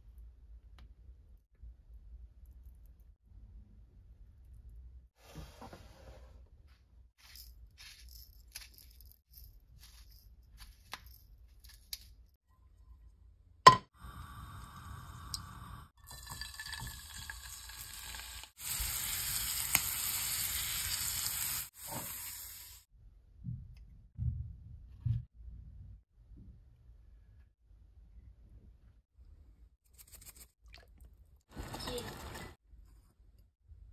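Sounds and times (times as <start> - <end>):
oil sizzling in frying pan: 14.1 - 22.9
oil pouring: 16.0 - 18.1.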